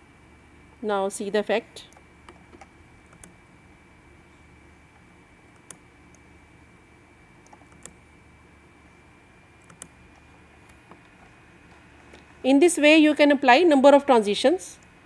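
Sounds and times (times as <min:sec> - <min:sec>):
steady high whine: 0:00.0 - 0:15.0
mouse and keyboard clicks: 0:07.4 - 0:08.0, 0:09.6 - 0:10.0.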